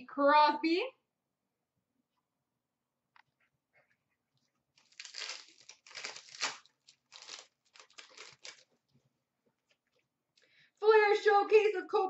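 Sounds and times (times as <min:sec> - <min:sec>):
foil wrapper crinkling and tearing: 0:04.7 - 0:08.9.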